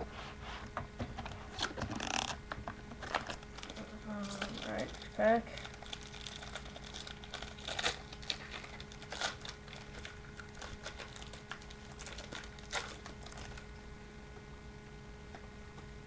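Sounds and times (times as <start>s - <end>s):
steady low hum: 0.0s - 16.0s
plastic wrapper crinkling and tearing: 1.6s - 2.4s, 3.0s - 13.8s.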